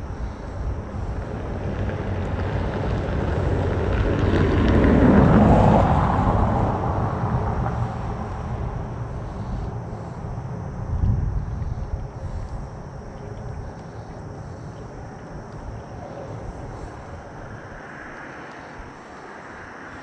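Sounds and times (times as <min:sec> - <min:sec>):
vehicle rumbling over bridge: 0:00.0 - 0:20.0.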